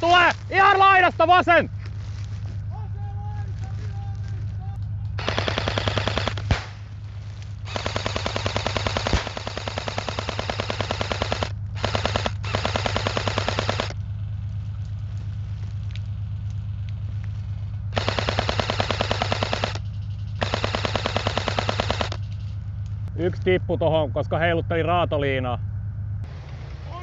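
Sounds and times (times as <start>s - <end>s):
airsoft gun firing full auto: 5.2s - 6.8s, 7.7s - 14.0s, 17.9s - 22.2s.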